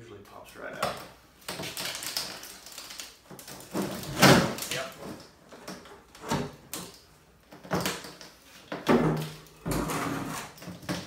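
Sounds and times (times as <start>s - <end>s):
knocks and thumps on workbench: 8.7s - 11.0s
lid scraping out of mold: 9.7s - 10.6s.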